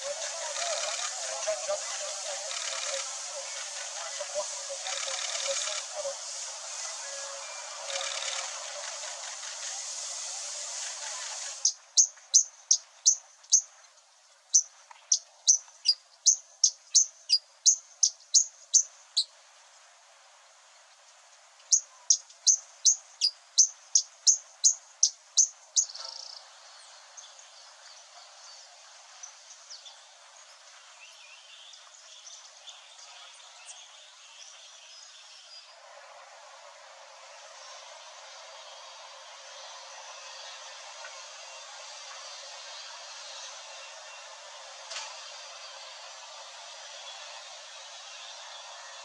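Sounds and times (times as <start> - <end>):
faint bird chirps: 0.0 - 9.7
steady hiss: 0.0 - 49.0.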